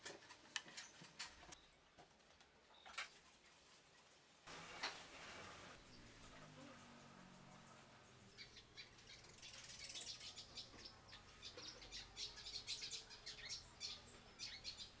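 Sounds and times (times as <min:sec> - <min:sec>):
sparrows chirping: 0:05.8 - 0:15.0.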